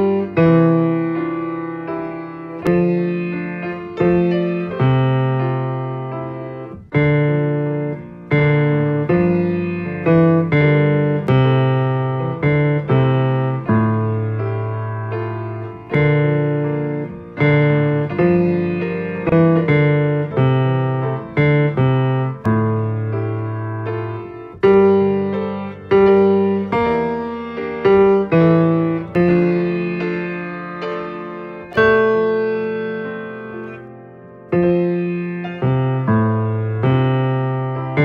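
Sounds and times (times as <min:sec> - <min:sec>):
slow piano chords: 0:00.0 - 0:38.0.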